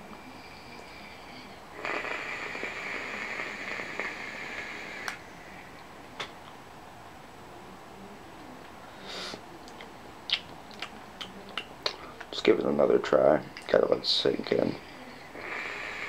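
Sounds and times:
airy hiss of vape draw: 1.8s - 5.2s, 15.4s - 16.0s.

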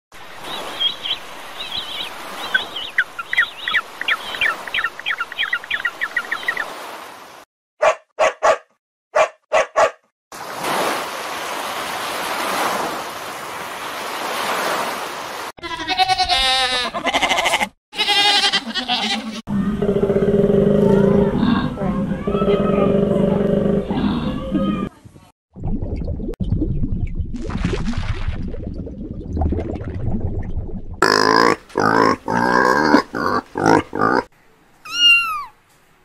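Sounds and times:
goats bleating: 15.6s - 19.4s
short loud animal calls: 34.8s - 35.6s.

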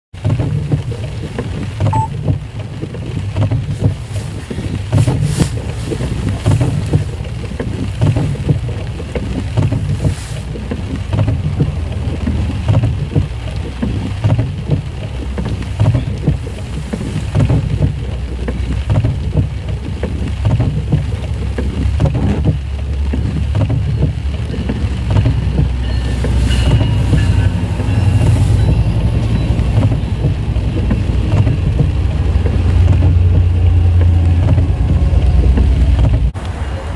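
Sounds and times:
rain and wind on a car: 0.1s - 36.9s
passenger train rolling past: 24.6s - 36.9s.

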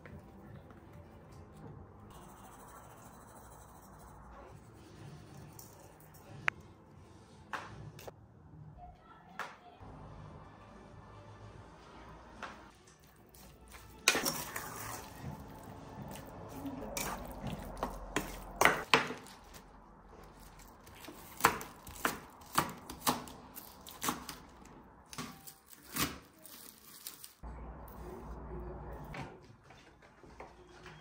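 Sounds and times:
utensils clattering: 13.4s - 19.3s
knife chopping on wooden board: 20.9s - 23.3s.

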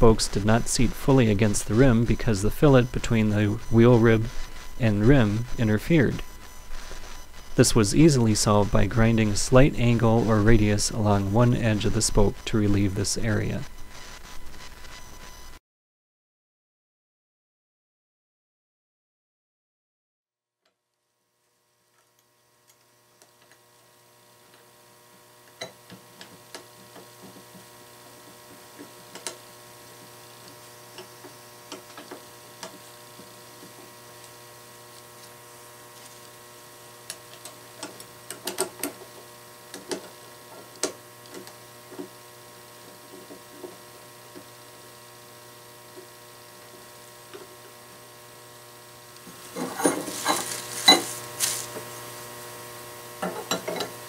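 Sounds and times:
electrical mains hum: 0.0s - 15.6s, 21.0s - 54.0s.

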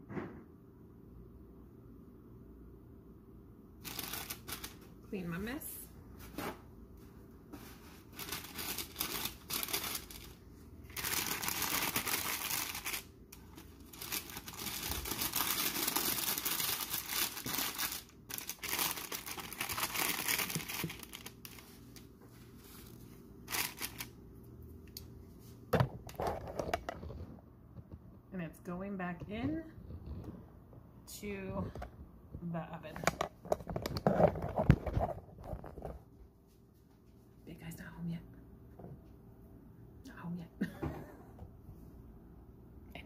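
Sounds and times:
parchment paper crinkling: 3.8s - 5.0s, 7.5s - 24.1s.

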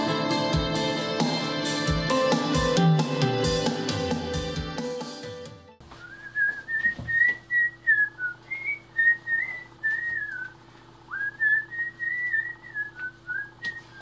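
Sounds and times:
person whistling a tune: 5.9s - 10.5s, 11.1s - 14.0s
steady low hum: 6.0s - 14.0s.

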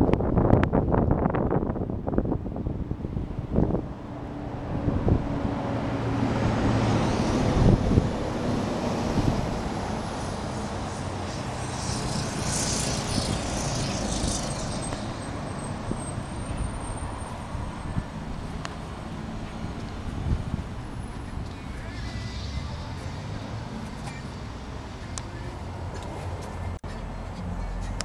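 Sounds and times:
wind on microphone: 0.0s - 21.7s
low engine hum: 0.0s - 28.0s
vehicle traffic: 0.0s - 28.0s.

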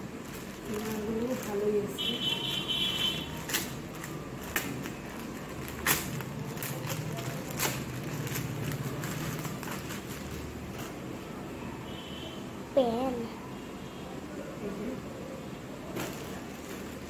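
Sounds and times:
plastic packaging crinkling: 0.0s - 11.1s, 15.9s - 17.0s.

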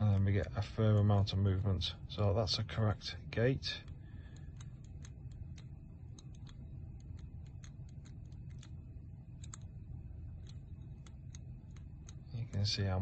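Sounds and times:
combination lock wheels clicking: 3.6s - 13.0s.

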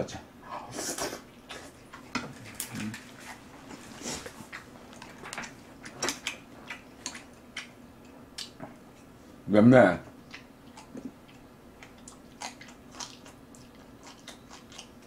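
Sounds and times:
chewing and lip smacking: 1.3s - 8.7s, 10.2s - 15.0s.

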